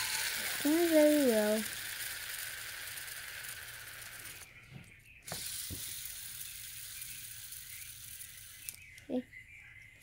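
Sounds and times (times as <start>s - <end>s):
fidget spinner whirring rattle: 0.0s - 4.6s, 5.2s - 9.2s.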